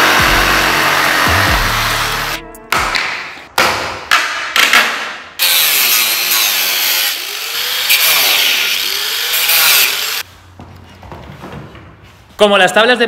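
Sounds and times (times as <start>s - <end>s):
angle grinder cutting wood: 0.0s - 2.4s, 5.4s - 10.2s.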